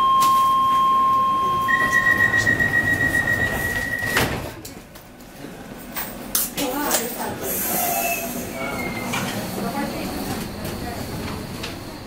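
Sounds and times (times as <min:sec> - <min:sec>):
door warning tones: 0:00.0 - 0:04.5.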